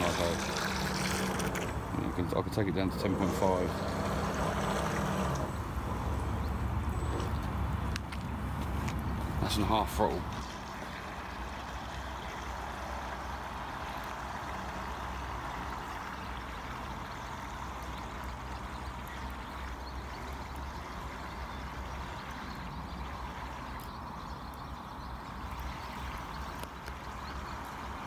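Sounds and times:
electric motors humming: 0.0s - 6.9s.

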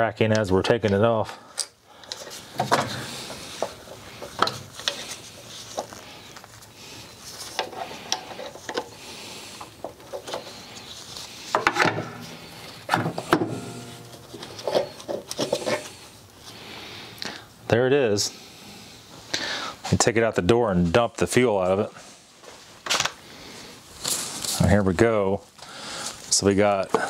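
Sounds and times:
rubbing and scraping: 2.2s - 16.2s.

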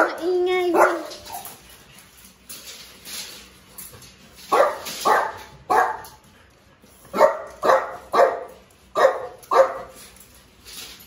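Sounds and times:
small dog barking: 0.0s - 1.1s, 4.5s - 6.1s, 7.1s - 9.9s.

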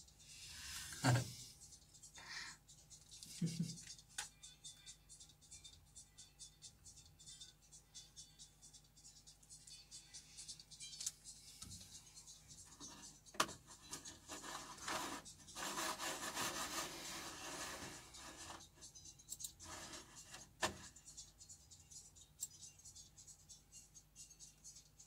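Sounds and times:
rubbing and rustling: 12.6s - 18.8s.

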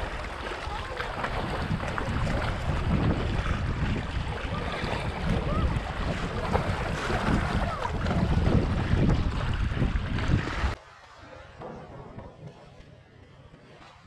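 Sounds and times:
wind buffeting microphone: 0.0s - 10.8s
choppy sea water: 0.0s - 14.0s.

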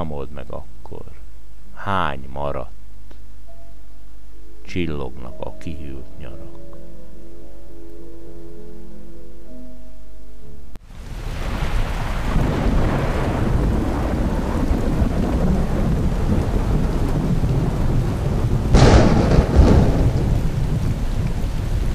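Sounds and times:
music ending: 5.2s - 10.8s
steady rain: 10.8s - 21.9s
thunder crack: 11.2s - 21.9s
low rumble of thunder: 11.3s - 21.9s.

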